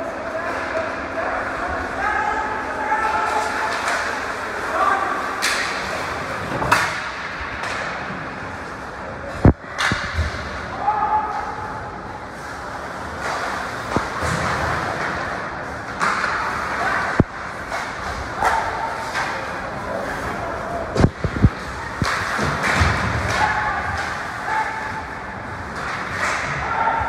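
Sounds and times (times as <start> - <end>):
people shouting: 10.7 - 11.8, 23.2 - 25.2, 26.2 - 27.0.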